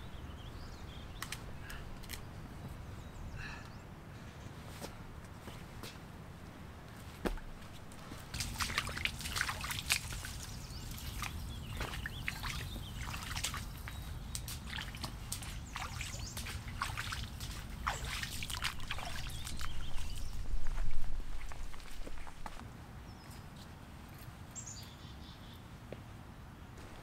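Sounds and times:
boots splashing through water: 8.2s - 22.4s.

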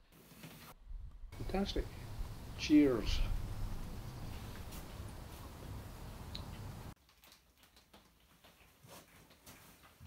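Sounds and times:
low rumble: 0.9s - 6.4s.

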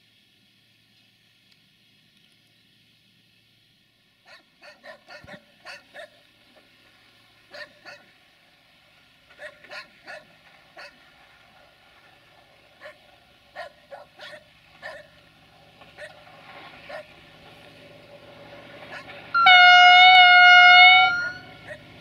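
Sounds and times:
dog barking: 4.3s - 6.2s, 7.5s - 8.1s, 9.4s - 11.0s, 12.8s - 13.0s, 13.6s - 15.1s, 16.9s - 17.1s, 21.6s - 21.9s.

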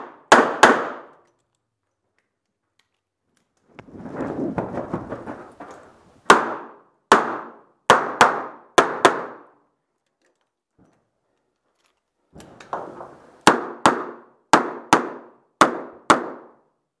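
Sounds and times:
shuffling movement: 3.8s - 6.2s.

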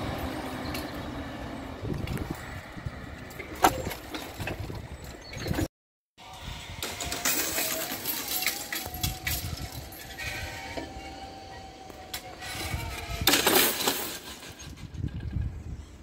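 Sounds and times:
barrier motor whine: 6.2s - 13.5s.

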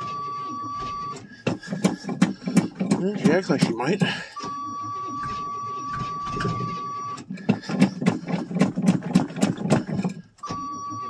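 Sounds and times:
key-in warning buzzer: 0.0s - 1.3s, 2.6s - 8.0s
starter cranking engine: 1.0s - 4.2s, 6.1s - 10.5s.

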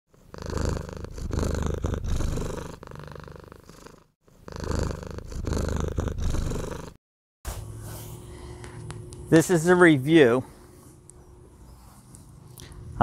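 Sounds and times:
cat purring: 0.1s - 7.0s.

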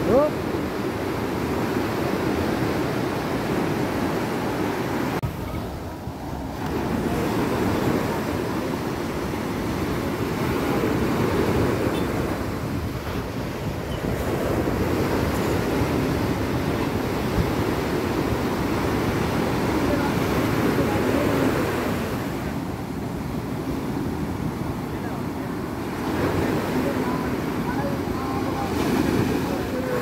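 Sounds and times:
sea waves breaking: 0.0s - 30.0s.

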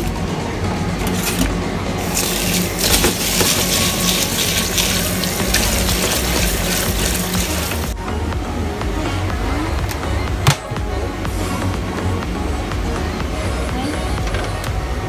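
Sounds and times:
hand swirling rice grains: 2.0s - 8.0s
tap water running into bowl: 2.0s - 8.0s.

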